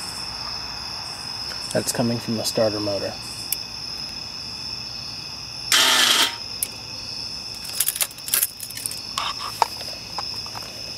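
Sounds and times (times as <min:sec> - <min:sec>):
motorcycle starter motor buzzing: 0:05.7 - 0:06.4.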